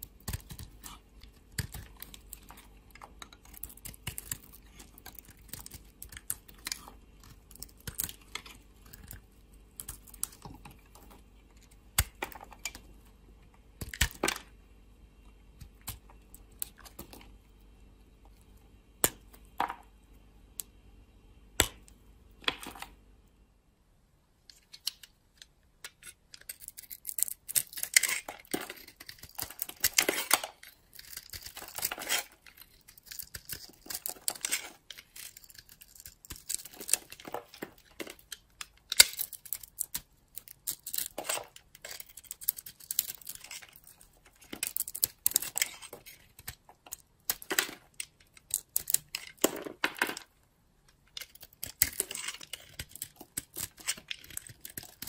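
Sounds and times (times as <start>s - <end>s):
knife blade scraping soap: 25.8s - 46.6s, 51.2s - 55.0s
soap flakes crunching: 26.7s - 38.2s.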